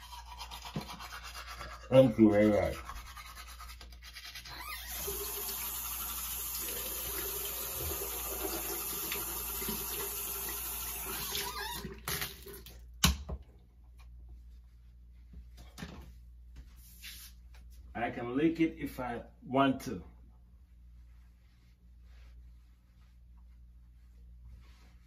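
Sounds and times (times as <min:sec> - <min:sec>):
water running from sink tap: 0:04.8 - 0:12.8.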